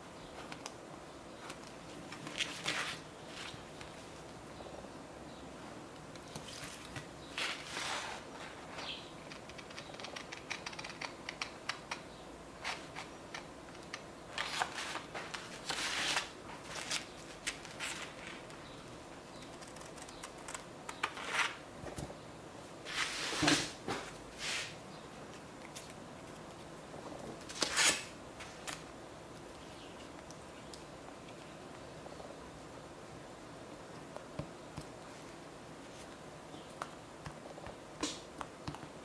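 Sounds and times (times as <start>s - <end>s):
paper rustling: 1.4s - 3.9s, 14.3s - 18.5s.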